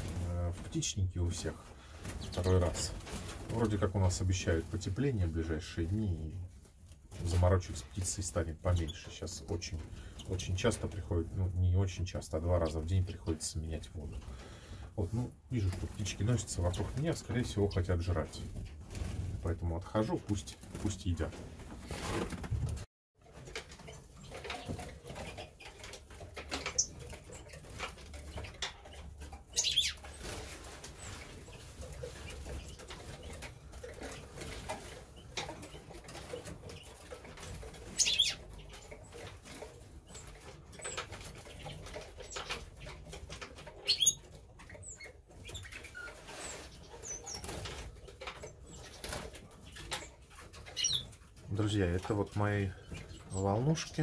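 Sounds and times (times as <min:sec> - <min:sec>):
birds chirping: 0:00.0 - 0:22.4, 0:23.6 - 0:54.0
birds fluttering wings: 0:00.0 - 0:54.0.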